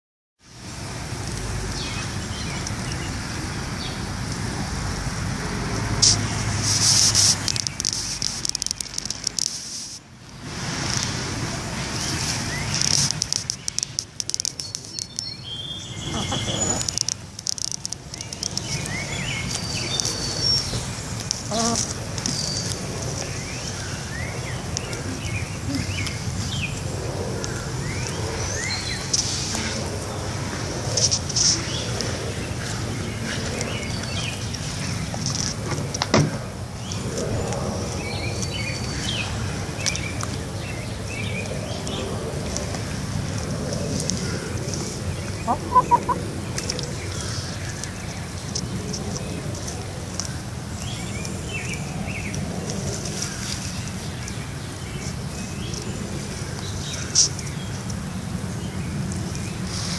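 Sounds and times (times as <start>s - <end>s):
outdoor background hum: 0.4s - 59.9s
birds chirping: 11.9s - 30.2s, 43.5s - 59.8s.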